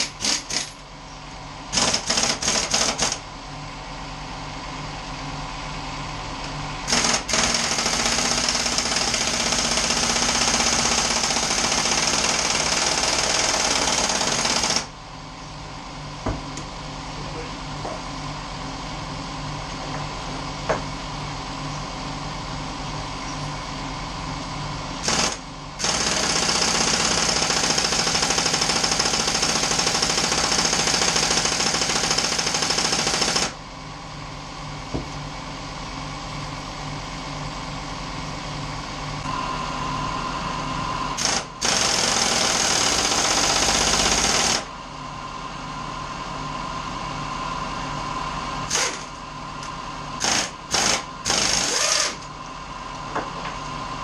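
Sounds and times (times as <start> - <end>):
air impact wrench: 0.0 - 0.8, 1.7 - 3.2, 6.8 - 14.9, 25.0 - 33.6, 41.2 - 44.7, 48.7 - 49.2, 50.2 - 52.3
steady hum: 0.0 - 29.4, 31.4 - 42.8.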